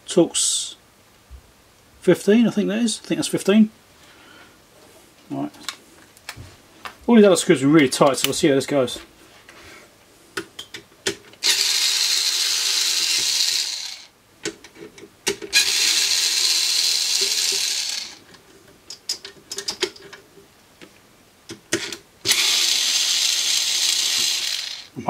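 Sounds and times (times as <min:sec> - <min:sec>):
electric screwdriver running: 0:11.4 - 0:14.1, 0:15.6 - 0:18.2, 0:22.3 - 0:24.9
small clicks and knocks: 0:18.3 - 0:22.0.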